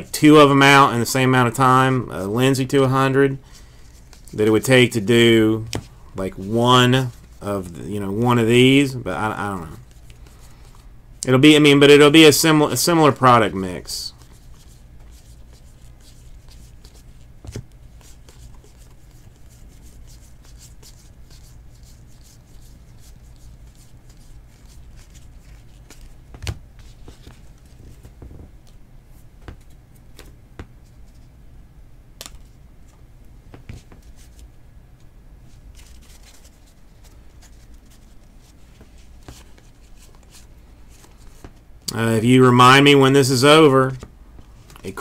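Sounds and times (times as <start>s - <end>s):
steady low hum: 0.0s - 45.0s
cards rustling and clicking: 3.5s - 4.7s, 5.6s - 10.9s, 12.8s - 31.3s, 32.2s - 34.5s, 35.7s - 41.6s, 43.8s - 45.0s.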